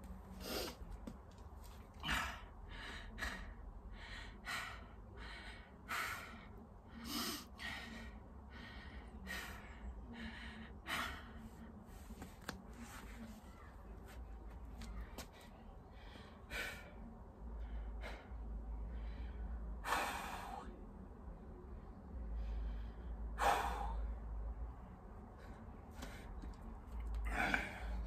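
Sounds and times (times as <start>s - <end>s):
man breathing hard: 2.0s - 11.7s, 15.2s - 20.7s, 22.2s - 24.4s, 27.2s - 28.0s.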